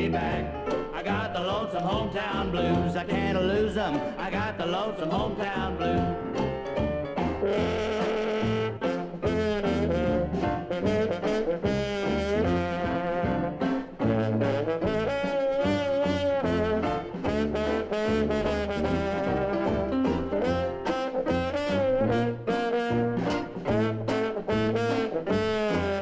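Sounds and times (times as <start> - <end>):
bass line: 0.0 - 26.0
brass horns playing melody: 7.2 - 26.0.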